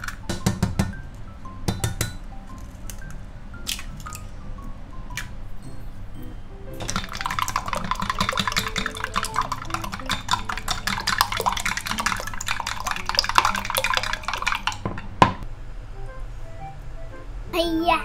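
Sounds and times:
chopsticks beating eggs: 6.8s - 15.1s.

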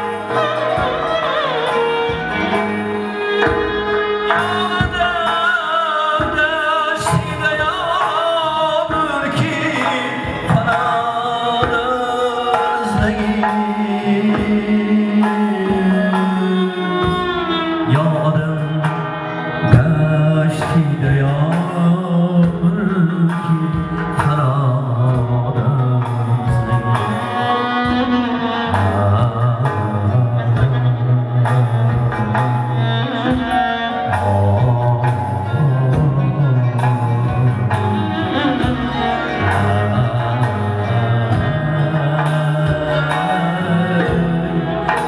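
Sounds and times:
frame drum beating: 0.0s - 5.6s, 29.0s - 45.0s
man singing into a microphone: 0.0s - 45.0s.

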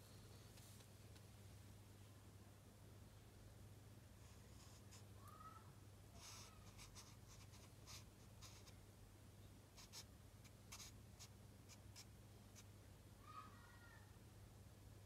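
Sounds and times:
low steady hum: 0.0s - 15.0s
marker scratching on paper: 6.2s - 8.7s, 9.8s - 12.7s.

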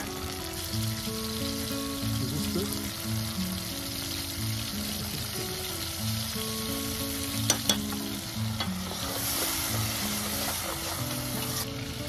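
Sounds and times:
tomatoes sizzling in a pot: 0.0s - 12.0s
metal spoon tapping pot: 7.5s - 8.0s.

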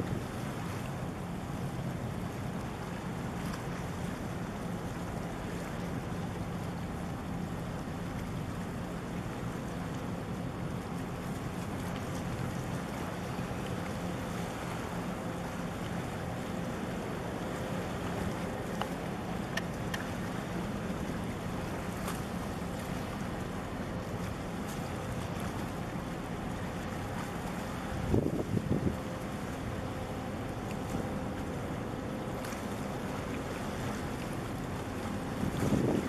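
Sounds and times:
water noise: 0.0s - 36.0s
wind: 0.0s - 36.0s
low engine drone: 8.1s - 36.0s.

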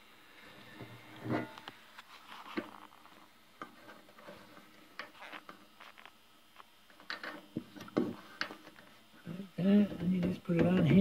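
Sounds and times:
faint clicks and scrapes: 0.4s - 9.1s.

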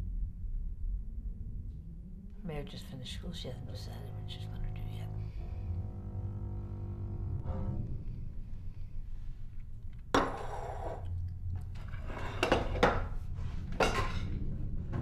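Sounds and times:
low steady hum: 0.0s - 15.0s
cutlery and dishes clinking: 13.8s - 14.3s.

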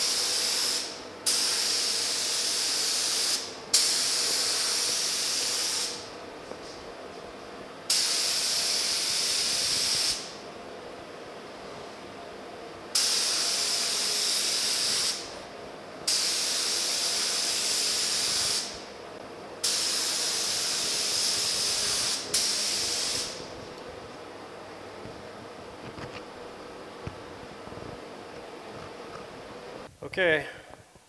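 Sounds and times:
paint spray gun hissing: 0.0s - 6.1s, 7.9s - 10.3s, 13.0s - 15.3s, 16.1s - 18.9s, 19.6s - 23.5s.

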